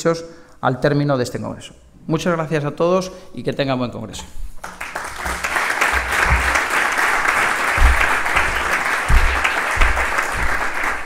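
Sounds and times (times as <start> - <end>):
audience applauding: 4.6 - 11.0
dull low thumps: 7.7 - 11.0.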